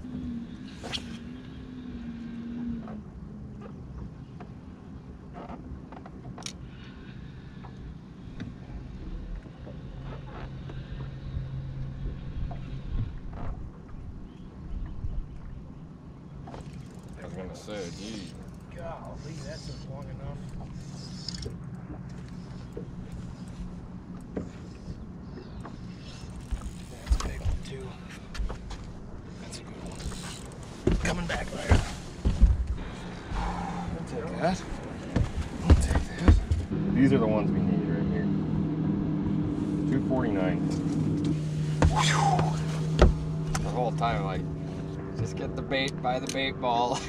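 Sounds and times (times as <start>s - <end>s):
boat motor humming: 0.0s - 47.0s
wind and water against hull: 0.0s - 47.0s
electric trolling motor humming: 36.2s - 46.9s.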